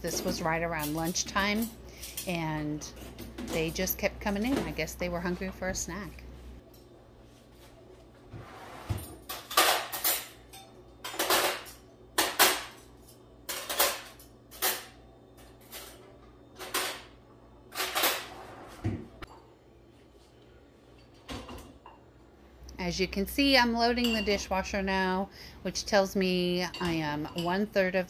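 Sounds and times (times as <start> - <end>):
metal cutlery clinking: 9.3 - 16.0.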